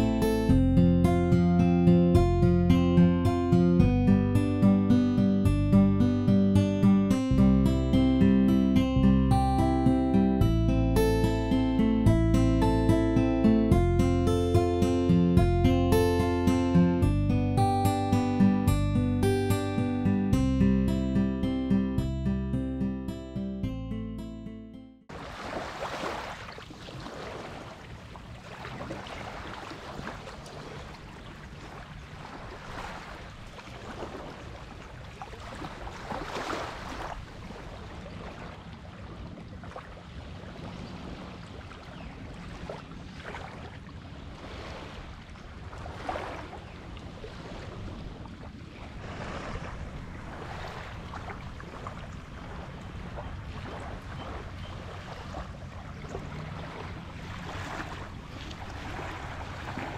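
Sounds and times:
small waves lapping on shore: 25.1s - 59.9s
wind on microphone: 26.8s - 59.9s.

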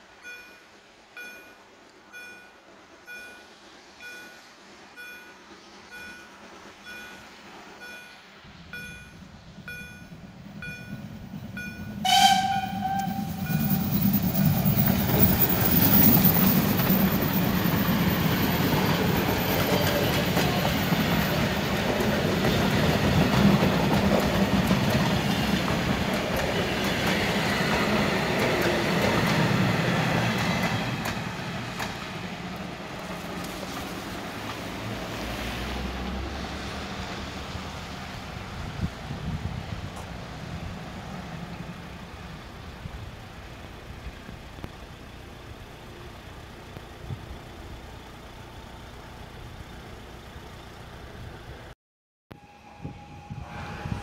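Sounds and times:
steam train rumbling past: 0.0s - 51.7s, 52.4s - 54.0s
level crossing signal beeping: 0.2s - 18.8s
steam locomotive whistle: 11.6s - 17.0s, 52.3s - 54.0s.

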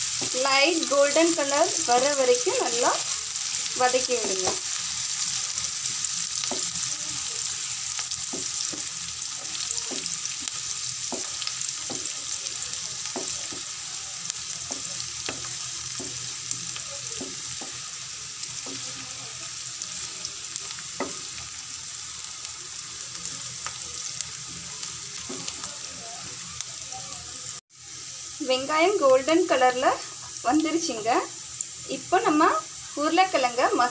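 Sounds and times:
onions sizzling in hot oil: 0.0s - 33.9s
spatula knocking and scraping pan: 4.1s - 4.7s, 6.4s - 6.8s, 8.2s - 10.3s, 11.0s - 12.2s, 13.1s - 13.8s, 14.6s - 16.3s, 17.1s - 17.8s, 21.0s - 21.3s, 25.2s - 25.6s.

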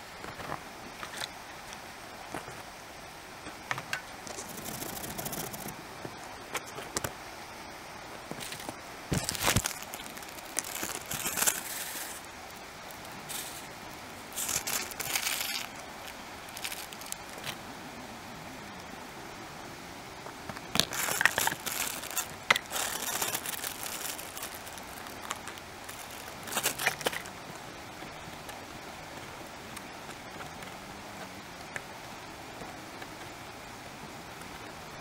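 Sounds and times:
plastic packaging crinkling: 8.3s - 17.6s, 20.7s - 27.3s.

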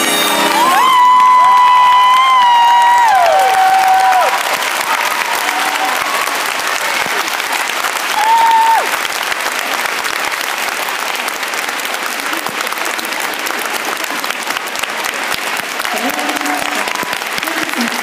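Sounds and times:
high call from crowd: 0.0s - 9.7s, 11.0s - 18.0s
audience applauding: 0.0s - 18.0s.

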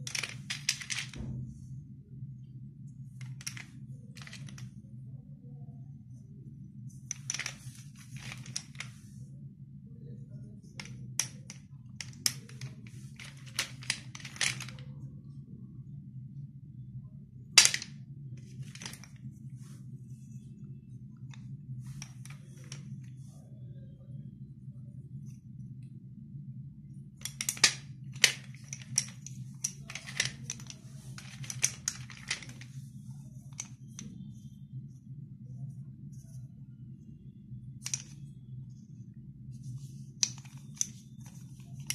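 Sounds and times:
pencil sticks clacking on metal: 0.0s - 1.2s, 7.1s - 8.9s, 10.8s - 14.8s, 17.6s - 19.2s, 27.2s - 32.8s, 37.8s - 38.3s, 40.2s - 41.9s
low steady hum: 0.0s - 41.9s
slate pencils crunching and snapping: 27.2s - 32.8s, 37.8s - 38.2s, 40.2s - 41.9s.

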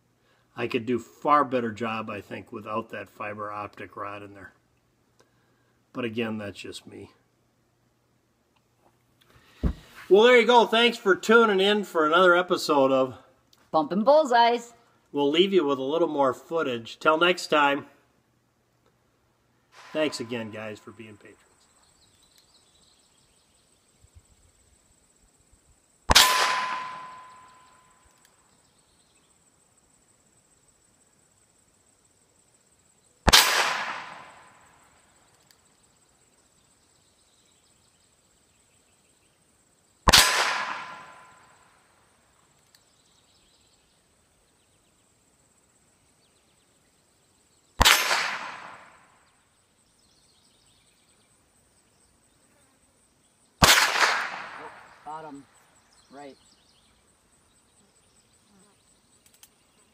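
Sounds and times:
revolver shots: 26.1s - 27.7s, 33.3s - 34.6s, 40.1s - 41.3s, 47.8s - 49.0s, 53.6s - 55.0s
steel target ringing: 26.1s - 28.0s.

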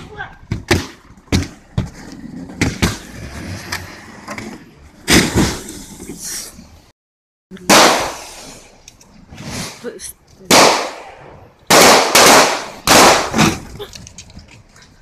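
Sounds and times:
sharp bangs: 7.6s - 8.4s, 10.5s - 13.8s.

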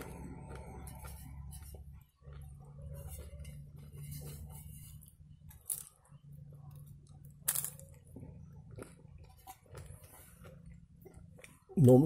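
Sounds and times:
crisp flatbread crunching: 0.0s - 11.8s
low steady hum: 0.0s - 12.0s.

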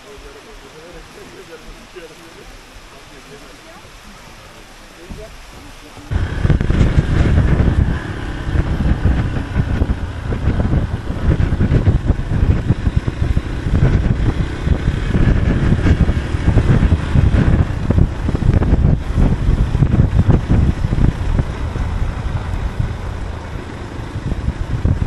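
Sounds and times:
wind buffeting microphone: 3.6s - 25.0s
motorcycle engine running: 6.1s - 25.0s.

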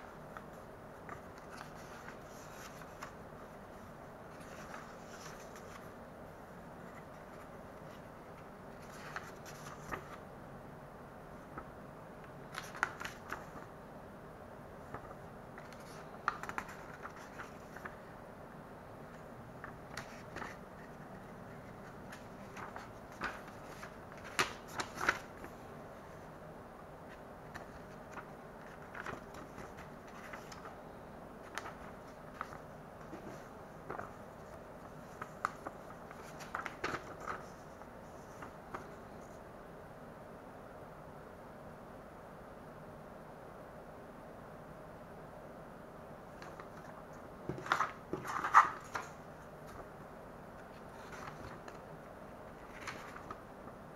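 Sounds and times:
paper pages rustling: 0.0s - 6.0s, 6.8s - 10.2s, 12.4s - 13.7s, 14.8s - 18.1s, 19.1s - 25.6s, 27.1s - 30.8s, 31.4s - 39.4s, 46.3s - 49.9s, 50.6s - 51.8s, 52.5s - 53.4s
faint steady hiss: 0.0s - 53.9s.

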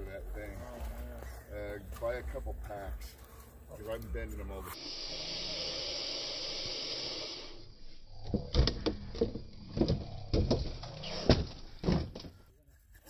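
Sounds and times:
steady hiss: 2.8s - 8.0s.

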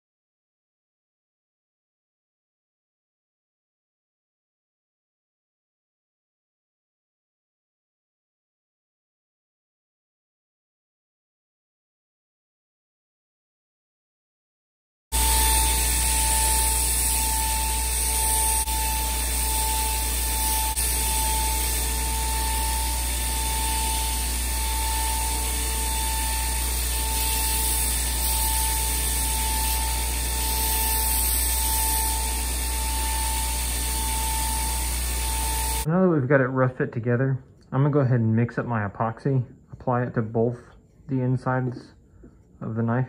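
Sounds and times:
belt grinder whining: 15.2s - 35.9s.

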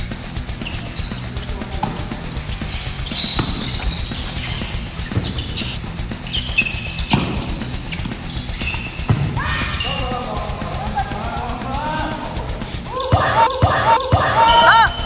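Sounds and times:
sneakers squeaking on wooden floor: 0.0s - 11.2s, 12.6s - 15.0s
background music: 0.0s - 15.0s
person shouting: 12.9s - 15.0s.

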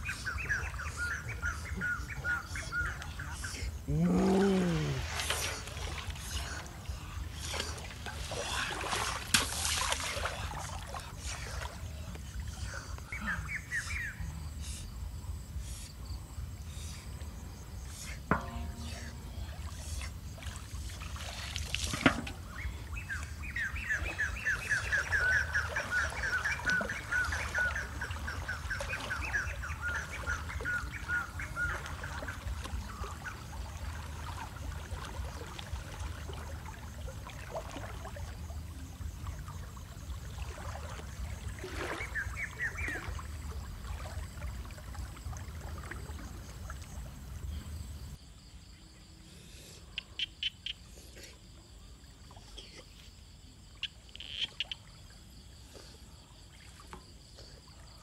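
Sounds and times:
water sloshing from wading: 0.0s - 14.6s, 16.3s - 48.2s
knock on metal basin: 18.3s - 19.3s.

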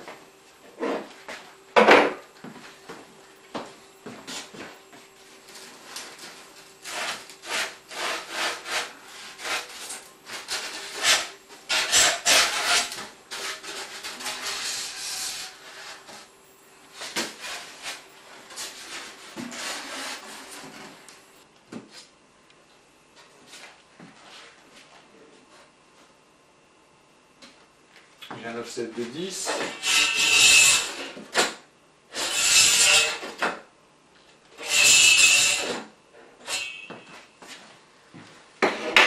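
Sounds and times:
polystyrene foam scraping: 5.5s - 16.3s, 16.9s - 21.0s.

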